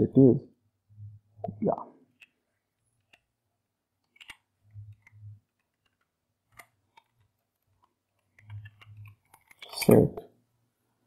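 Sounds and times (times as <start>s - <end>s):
keyboard and mouse clicks: 1.4s - 2.4s, 3.0s - 3.3s, 4.0s - 10.2s.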